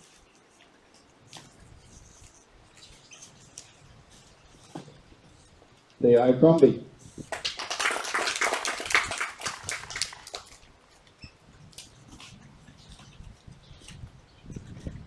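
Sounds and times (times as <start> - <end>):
children clapping: 7.3 - 10.6.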